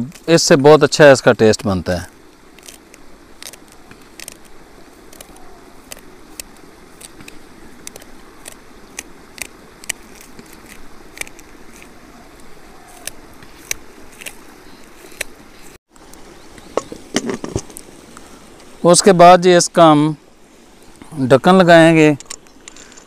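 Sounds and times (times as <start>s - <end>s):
knife slicing green onions: 5.1s - 14.4s.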